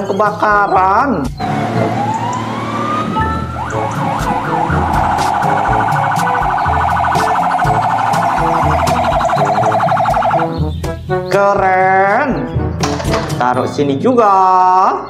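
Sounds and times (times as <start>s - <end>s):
toy electronic siren: 1.4s - 10.5s.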